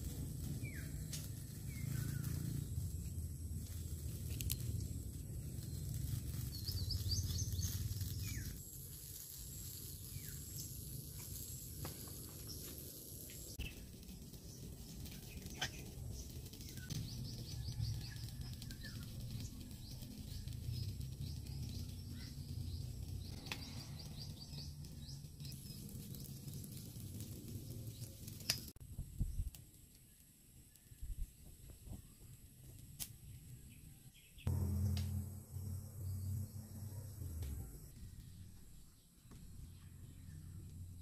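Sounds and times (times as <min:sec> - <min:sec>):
low rumble: 0:00.0 - 0:08.6, 0:13.4 - 0:29.3, 0:34.4 - 0:41.0
birds chirping: 0:00.5 - 0:03.5, 0:04.5 - 0:08.6, 0:12.4 - 0:28.7.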